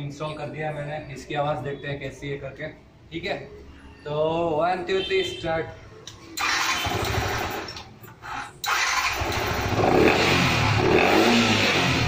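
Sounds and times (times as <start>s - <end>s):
motorcycle engine starting: 6.4s - 12.0s.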